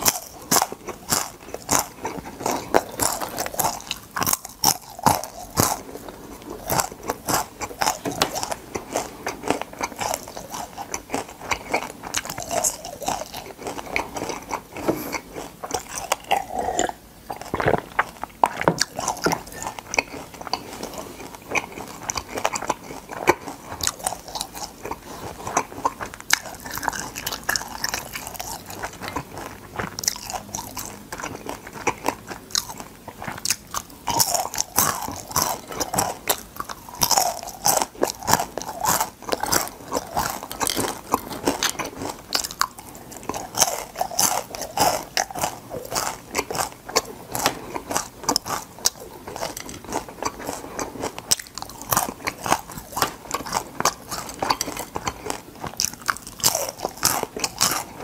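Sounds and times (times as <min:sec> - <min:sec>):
crunching crispy fried food: 0:00.0 - 0:58.0.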